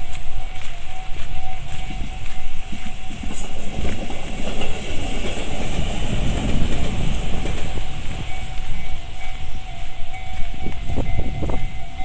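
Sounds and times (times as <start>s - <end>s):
level crossing warning bell: 0.0s - 12.0s
train rumble with wheel clatter: 0.0s - 12.0s.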